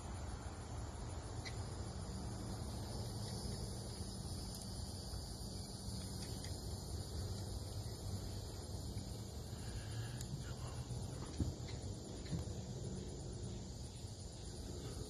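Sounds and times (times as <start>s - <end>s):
insects droning: 0.0s - 15.0s.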